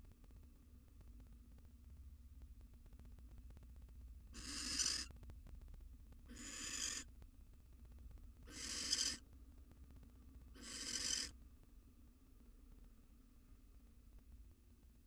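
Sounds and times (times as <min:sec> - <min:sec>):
owl screech calls: 0:04.4 - 0:05.1, 0:06.3 - 0:07.1, 0:08.5 - 0:09.2, 0:10.6 - 0:11.4.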